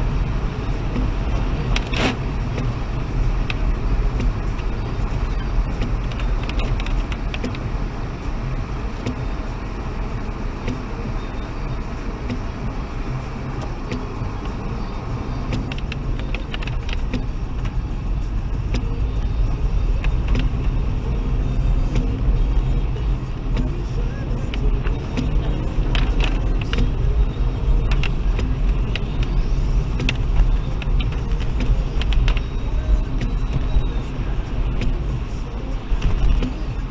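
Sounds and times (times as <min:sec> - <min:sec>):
engine and tyre rumble: 0:00.0 - 0:36.9
light ticks: 0:03.4 - 0:04.7, 0:10.6 - 0:10.8, 0:13.6 - 0:14.6, 0:23.5 - 0:27.2, 0:27.9 - 0:32.5.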